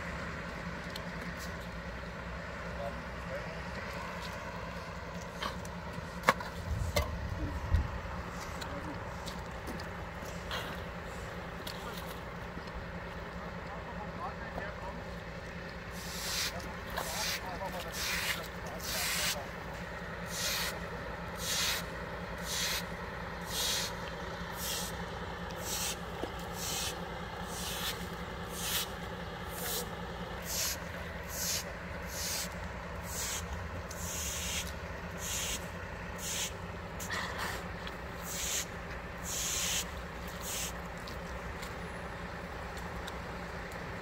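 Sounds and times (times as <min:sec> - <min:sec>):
engine and road noise: 0:00.0 - 0:44.0.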